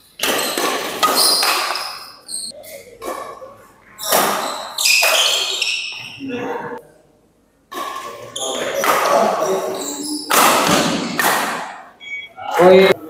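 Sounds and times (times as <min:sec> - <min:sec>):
shoes squeaking on court floor: 0:00.1 - 0:03.3, 0:04.0 - 0:06.2, 0:07.7 - 0:11.2
rackets hitting shuttlecock: 0:00.2 - 0:02.2, 0:10.3 - 0:11.8.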